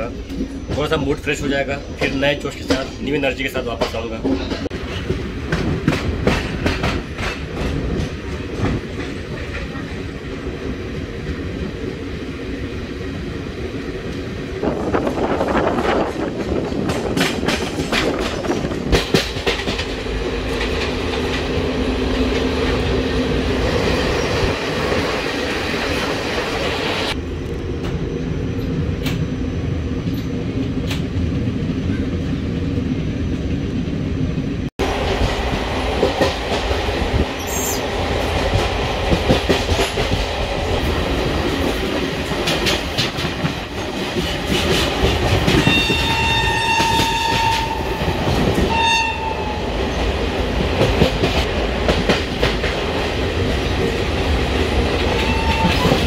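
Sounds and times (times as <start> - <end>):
train rolling rumble: 0.0 - 56.0
train wheels clacking over rail joints: 0.3 - 10.0, 14.9 - 21.6, 38.2 - 48.8, 50.6 - 53.1.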